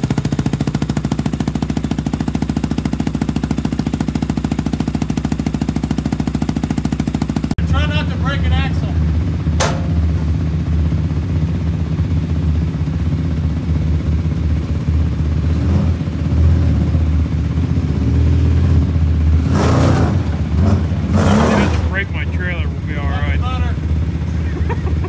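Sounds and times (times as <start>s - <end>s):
vehicle engine running: 0.0s - 25.0s
sharp knock: 9.6s - 10.1s
rattling clatter: 9.6s - 10.3s.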